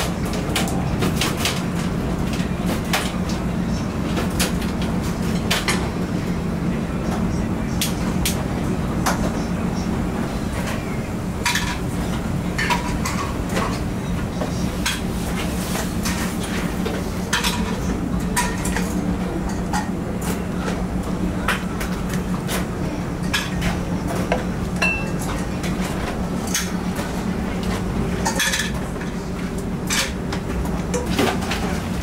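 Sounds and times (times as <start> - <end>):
utensils clinking against metal pots: 24.8 - 25.4.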